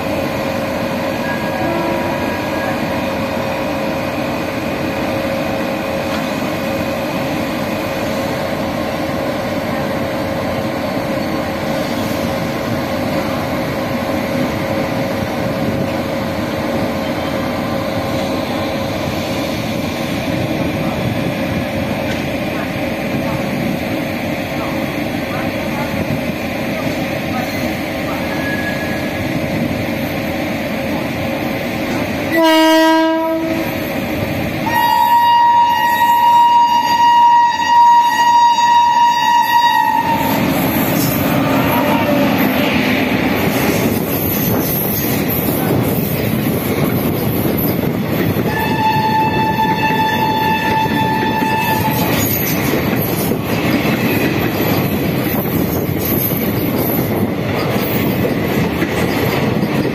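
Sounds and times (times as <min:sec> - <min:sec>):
train horn blasts: 0:01.2 - 0:02.8, 0:32.3 - 0:33.8, 0:34.6 - 0:40.4, 0:41.3 - 0:42.4, 0:48.5 - 0:52.1
train wheels clattering over rails: 0:40.0 - 0:59.9.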